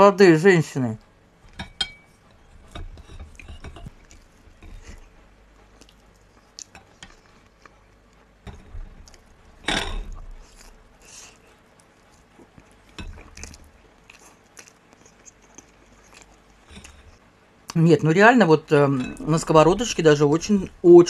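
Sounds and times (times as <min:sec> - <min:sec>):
fork scraping china plate: 0:01.9 - 0:04.0
soft chewing: 0:02.0 - 0:17.8.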